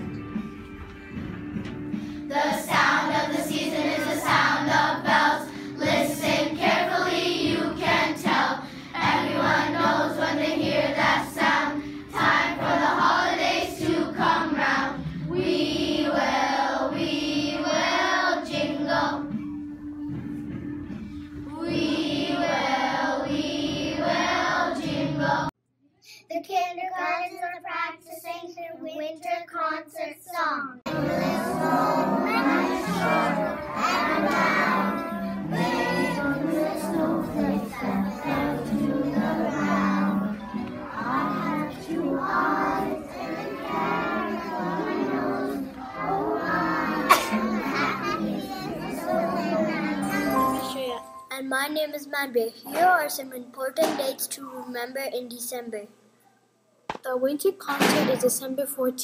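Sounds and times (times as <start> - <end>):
children singing: 2.3 - 19.4, 21.5 - 25.5, 30.9 - 51.0.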